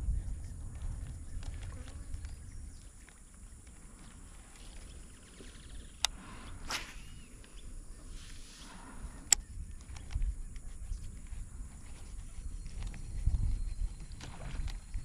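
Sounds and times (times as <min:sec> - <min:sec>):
low wind rumble: 0:00.0 - 0:15.0
rod swish: 0:06.6 - 0:07.3.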